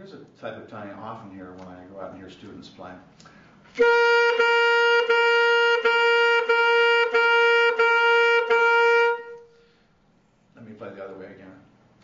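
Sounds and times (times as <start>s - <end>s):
saxophone repeating a note: 3.7s - 9.7s.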